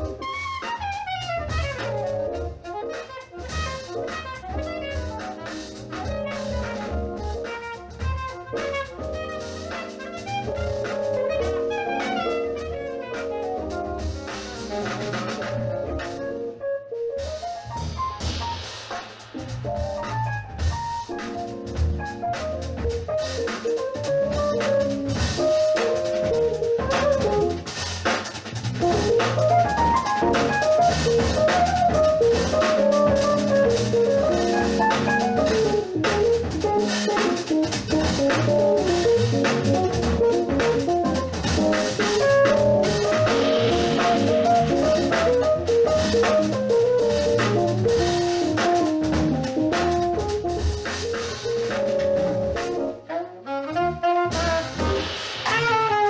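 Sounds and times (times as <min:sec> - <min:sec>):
electric bass: 0:00.0 - 0:02.7, 0:03.4 - 0:16.4, 0:17.2 - 0:53.0, 0:53.6 - 0:56.0
drum kit: 0:00.0 - 0:56.0
keyboard solo: 0:09.0 - 0:16.9, 0:29.1 - 0:37.1.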